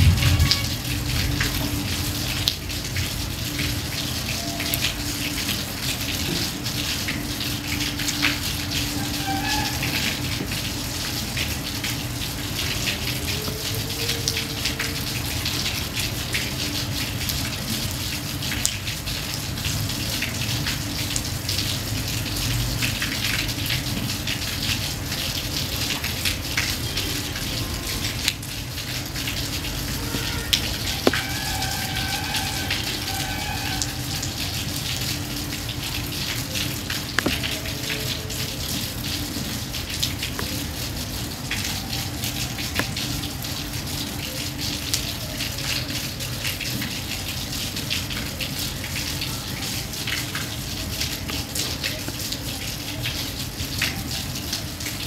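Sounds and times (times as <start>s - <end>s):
raindrop hits: 0.0s - 3.3s, 26.6s - 43.5s
steady rain falling: 0.0s - 55.0s.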